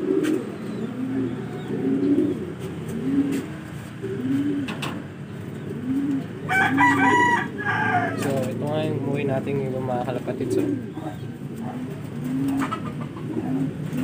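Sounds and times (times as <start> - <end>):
pigeons cooing: 0.0 - 14.0
rooster crowing: 6.5 - 8.4.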